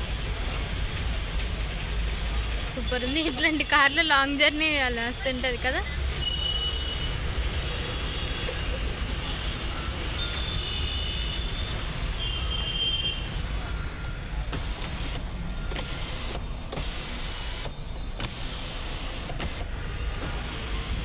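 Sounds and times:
electric sunroof motor running: 14.5s - 19.6s.

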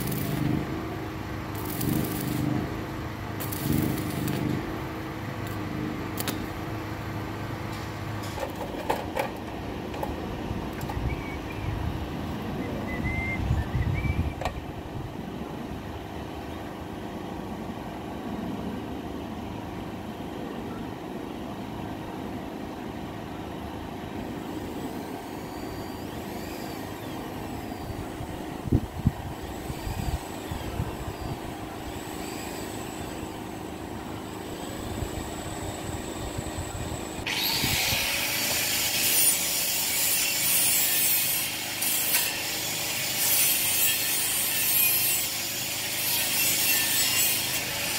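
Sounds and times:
power grinder grinding steel: 0.0s - 6.7s, 31.2s - 33.6s, 36.4s - 47.9s.

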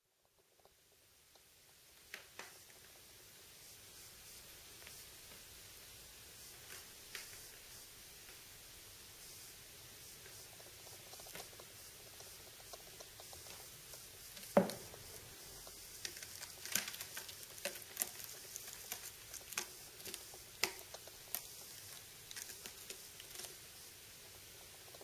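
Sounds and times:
kitten claws scratching rope: 16.0s - 23.6s.

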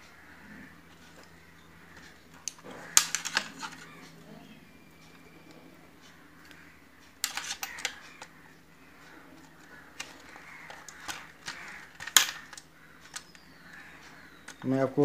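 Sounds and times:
plastic switch clicks and rattles: 7.2s - 8.4s, 9.4s - 14.7s.

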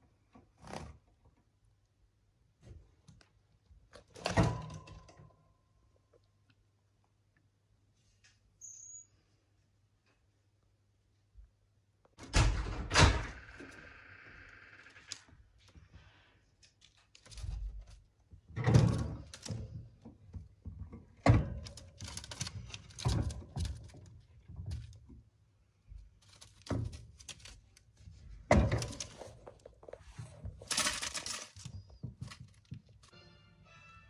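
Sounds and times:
rustling: 25.8s - 33.1s.

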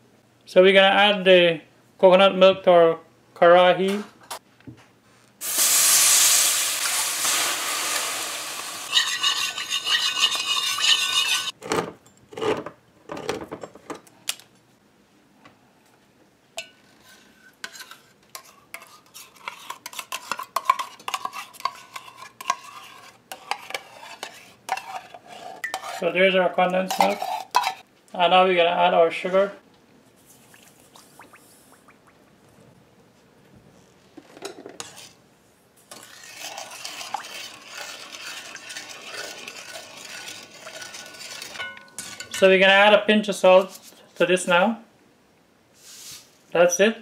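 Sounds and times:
can and utensil clinking on pot: 6.8s - 12.2s, 26.8s - 27.8s, 35.9s - 42.5s
liquid pouring and splashing: 36.0s - 41.4s.

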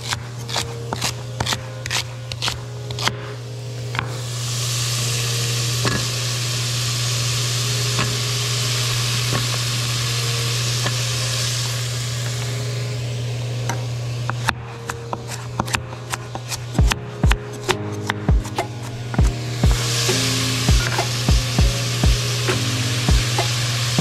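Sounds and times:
low hum: 0.0s - 24.0s
vegetables sizzling in a pot: 4.2s - 12.7s, 19.8s - 24.0s.

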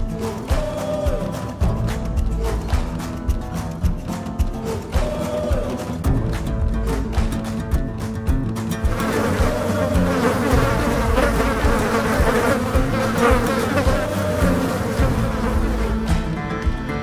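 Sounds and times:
insect swarm buzzing: 8.8s - 16.2s.

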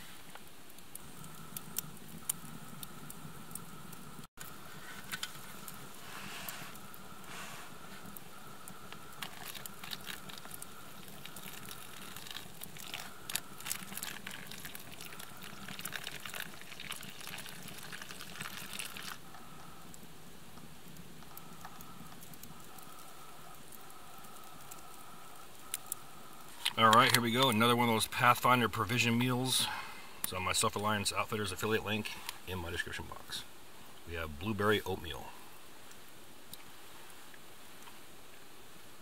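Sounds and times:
hot water pouring into pouch: 9.1s - 19.3s.

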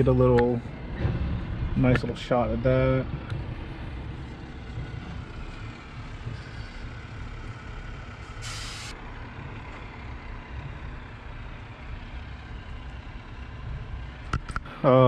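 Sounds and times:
low background rumble: 0.0s - 15.0s
short burst of hiss: 8.3s - 8.9s.

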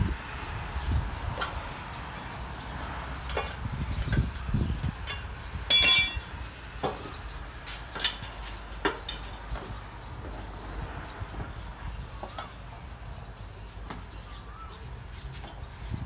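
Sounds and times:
metal tools clanking: 5.0s - 6.4s
sharp metal knocks: 5.1s - 7.0s
loud ringing metallic clang: 5.7s - 6.4s.

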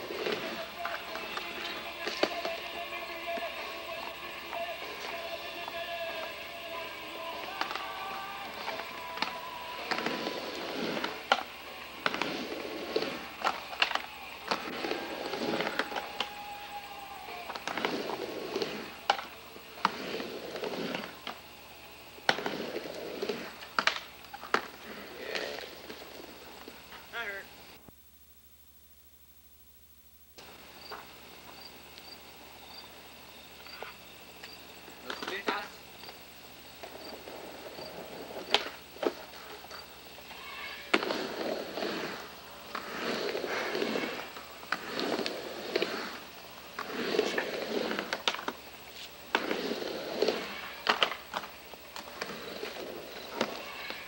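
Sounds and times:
skateboard wheels rolling: 0.0s - 27.8s, 30.4s - 54.0s
skateboard clacking on ramp: 0.1s - 16.8s, 17.4s - 21.4s, 22.2s - 26.7s, 36.8s - 39.8s, 40.4s - 46.2s, 46.8s - 48.6s, 49.3s - 54.0s.

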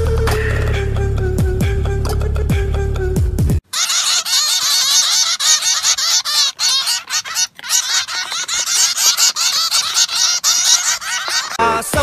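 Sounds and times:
flock of small birds chirping: 3.8s - 11.6s.

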